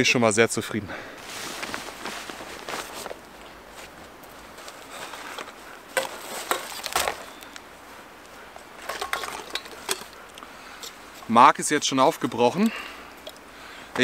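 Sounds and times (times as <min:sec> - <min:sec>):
plastic bag rustling: 0:01.2 - 0:07.6.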